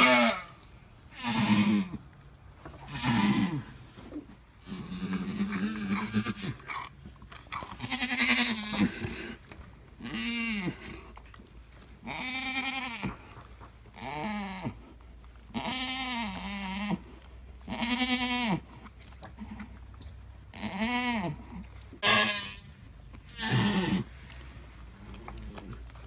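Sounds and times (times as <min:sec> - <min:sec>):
goats bleating: 0:00.0 - 0:00.5, 0:01.1 - 0:02.0, 0:02.9 - 0:03.7, 0:07.8 - 0:09.2, 0:12.0 - 0:13.3, 0:15.5 - 0:17.0, 0:17.7 - 0:18.6, 0:22.0 - 0:22.6, 0:23.3 - 0:24.1.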